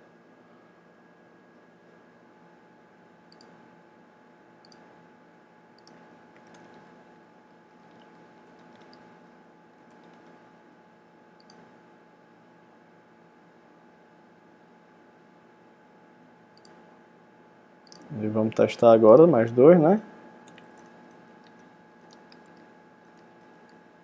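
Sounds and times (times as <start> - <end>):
faint steady hum: 0.0 - 24.0
computer mouse clicks: 3.3 - 3.6, 4.6 - 4.8, 5.8 - 6.9, 7.8 - 9.0, 9.8 - 10.4, 11.4 - 11.6, 16.6 - 16.8, 17.8 - 18.1, 20.5 - 23.8
keyboard typing: 5.8 - 6.9, 7.8 - 9.0, 9.8 - 10.3, 17.9 - 18.1, 20.5 - 23.8.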